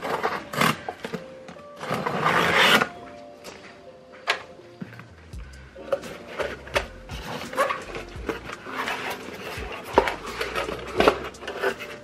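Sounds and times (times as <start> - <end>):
cardboard rustling and scraping: 6.1 - 12.0.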